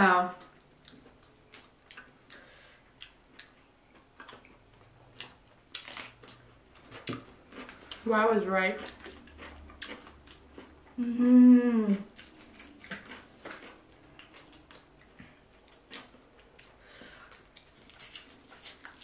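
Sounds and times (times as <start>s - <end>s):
person humming mmm: 11.0s - 12.1s.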